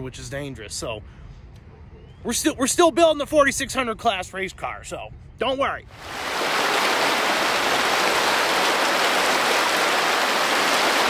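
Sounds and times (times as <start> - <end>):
river rushing: 6.0 - 11.0.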